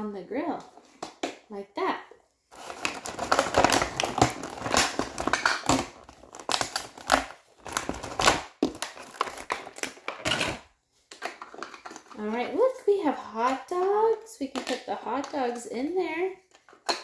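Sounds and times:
plastic packaging crinkling: 2.5s - 12.4s.

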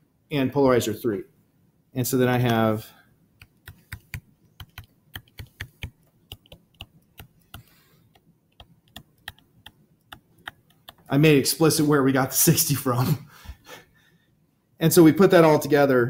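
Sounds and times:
stylus tapping on screen: 3.4s - 11.1s.

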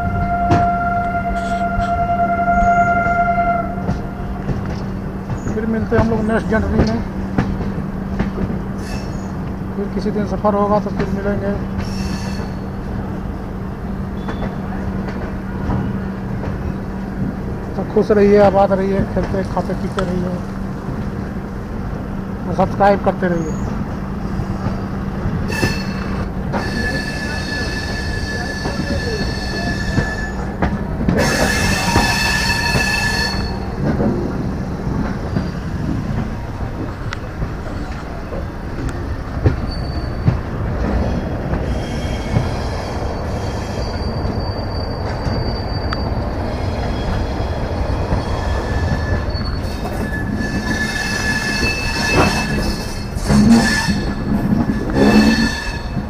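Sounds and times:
train wheels rumbling on rails: 0.0s - 56.0s
high metallic squeal: 25.5s - 30.5s, 31.2s - 33.7s, 39.6s - 40.3s, 41.6s - 47.2s, 48.2s - 56.0s.

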